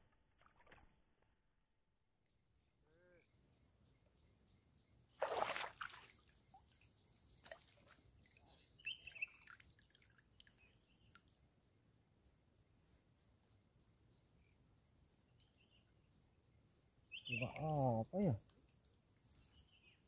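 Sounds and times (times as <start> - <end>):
fish splashing in water: 5.2 - 6.2
water dripping: 9.1 - 11.4.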